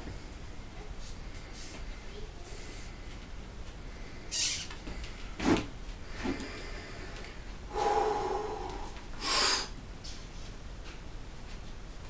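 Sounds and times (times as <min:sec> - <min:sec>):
man breathing forcefully: 0:06.1 - 0:09.8.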